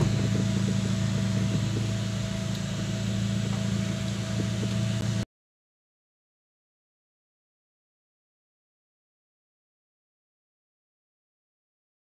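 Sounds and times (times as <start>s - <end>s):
vehicle engine and road noise: 0.0s - 5.3s.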